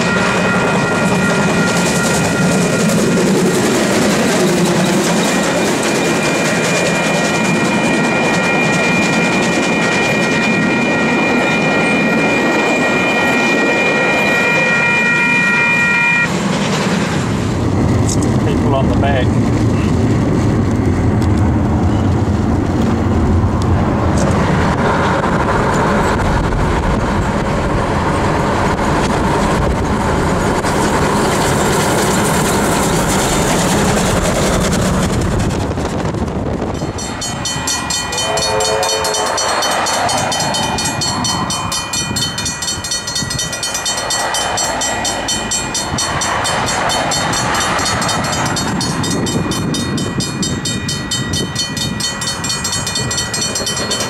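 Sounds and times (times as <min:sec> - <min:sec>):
locomotive whistle: 0:05.8 - 0:16.3, 0:36.9 - 0:49.1
car road and wind noise: 0:16.2 - 0:38.1, 0:39.6 - 0:54.0
steam locomotive exhaust: 0:22.0 - 0:54.0
level crossing bell ringing: 0:36.8 - 0:54.0.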